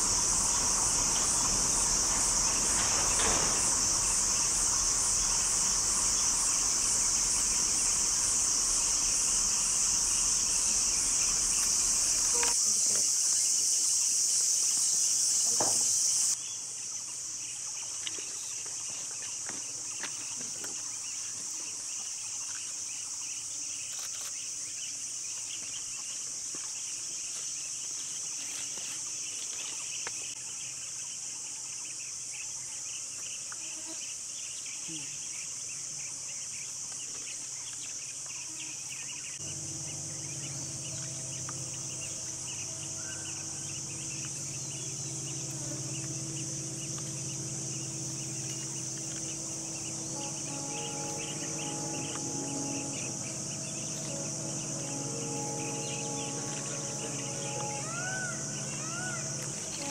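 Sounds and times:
low steady hum: 0.0s - 12.7s, 39.4s - 59.9s
insects droning high-pitched: 0.0s - 59.9s
rapid insect chirping: 0.0s - 59.9s.

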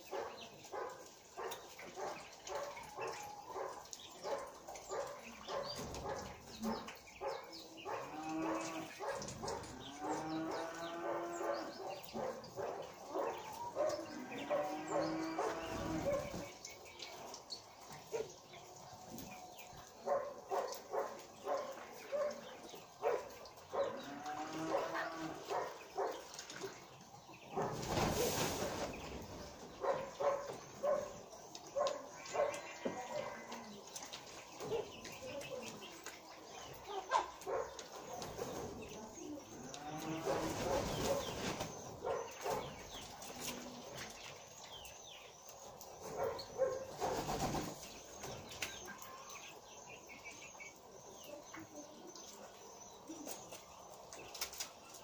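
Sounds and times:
bird wings flapping: 27.7s - 29.2s, 47.0s - 47.8s.

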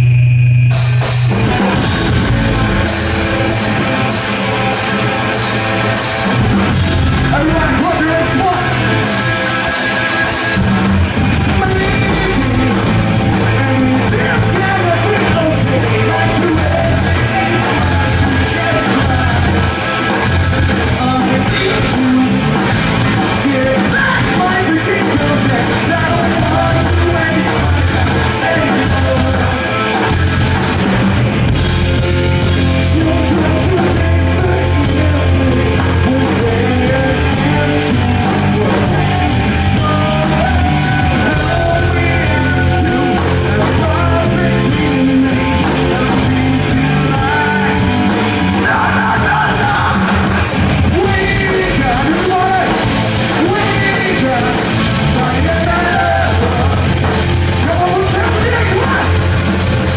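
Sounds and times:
drums: 0.0s - 59.9s
electric guitars: 0.0s - 59.9s
person singing into microphone: 11.5s - 19.9s, 20.9s - 30.1s, 32.7s - 59.4s.

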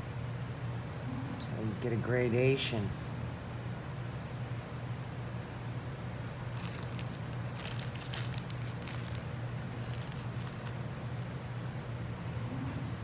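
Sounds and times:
steady low hum: 0.0s - 13.0s
wool fibres rustling: 6.4s - 11.4s.

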